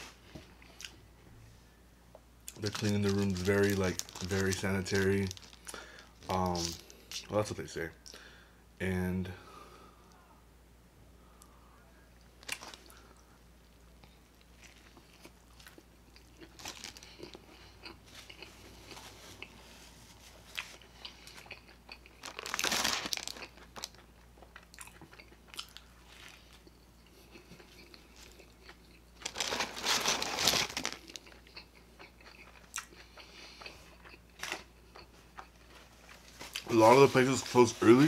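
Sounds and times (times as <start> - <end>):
person chewing crunchy food: 13.8 - 38.0.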